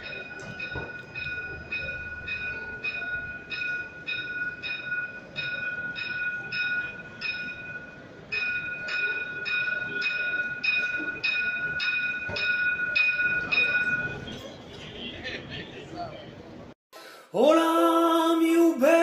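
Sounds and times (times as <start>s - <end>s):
tram warning bell ringing: 0.0s - 15.1s.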